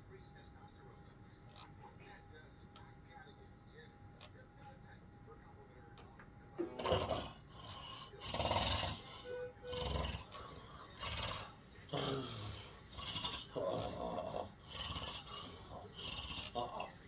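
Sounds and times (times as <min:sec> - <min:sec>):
person snoring and snorting: 0:06.7 - 0:09.1, 0:09.7 - 0:17.0.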